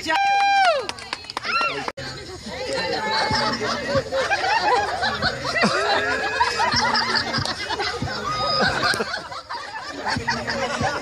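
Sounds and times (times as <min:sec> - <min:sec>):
girls laughing and chattering: 0:00.8 - 0:11.0.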